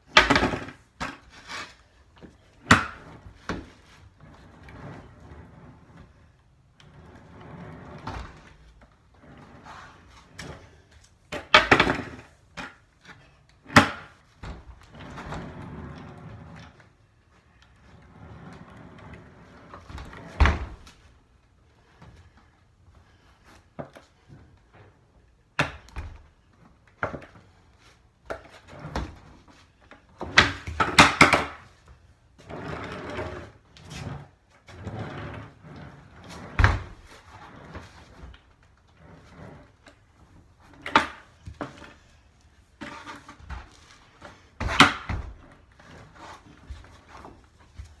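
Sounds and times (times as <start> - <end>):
skateboard wheels rolling on concrete: 0.0 - 22.4, 26.4 - 48.0
skateboard deck clacks and thuds: 30.3 - 31.6.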